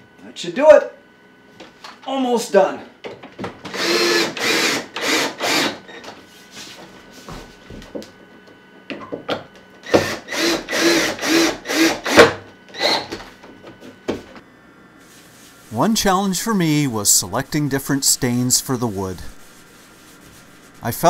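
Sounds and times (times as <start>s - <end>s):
cordless drill driving screws: 3.7s - 5.8s, 9.8s - 13.1s.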